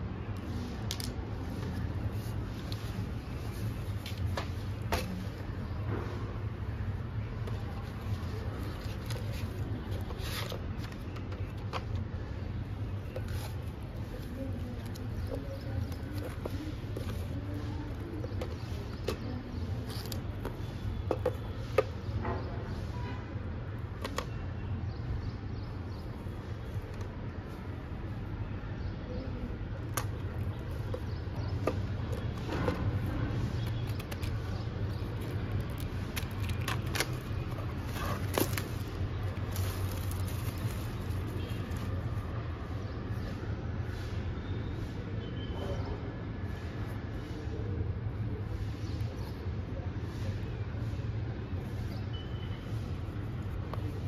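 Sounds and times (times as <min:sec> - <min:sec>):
handling clicks taps and crinkles: 0:00.3 - 0:01.8, 0:02.6 - 0:05.4, 0:07.4 - 0:22.4, 0:23.9 - 0:24.4, 0:29.8 - 0:42.1, 0:53.4 - 0:54.0.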